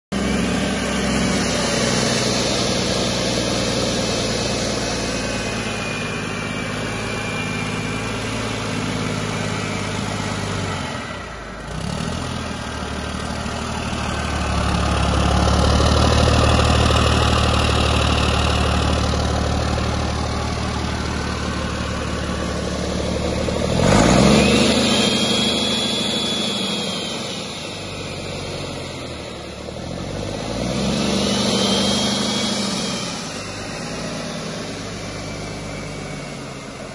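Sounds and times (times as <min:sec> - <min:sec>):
diesel engine running: 0:00.1 - 0:36.9
thin high whistle: 0:00.2 - 0:11.4, 0:19.8 - 0:36.9.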